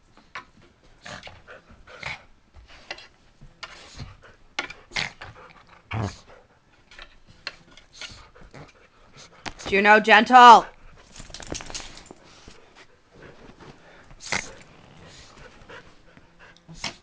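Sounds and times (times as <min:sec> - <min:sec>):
dogs huffing and scuffling: 0:10.7 - 0:17.0.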